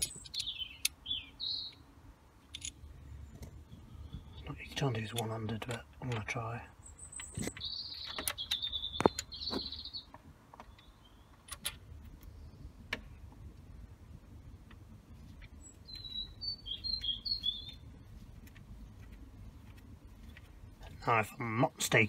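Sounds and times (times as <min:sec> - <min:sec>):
metallic clicks and knocks of bolts: 0:00.0 - 0:01.0, 0:02.4 - 0:02.9, 0:04.7 - 0:06.4, 0:10.6 - 0:11.9
bird chirping: 0:00.0 - 0:01.9, 0:02.7 - 0:12.9, 0:15.1 - 0:22.0.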